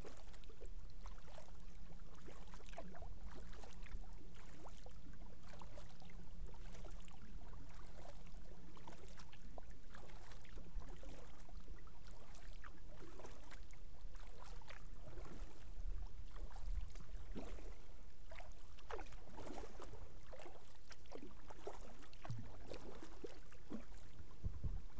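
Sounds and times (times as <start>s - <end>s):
paddle dipping into water: 0.0s - 24.9s
water splashes and drips: 0.0s - 24.9s
steady low rumble: 24.3s - 24.9s.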